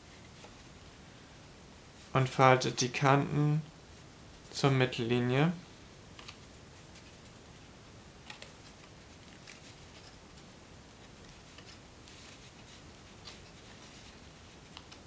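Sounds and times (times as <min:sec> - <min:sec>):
low steady hiss: 0:00.0 - 0:15.0
paper crackling as folded: 0:08.2 - 0:15.0.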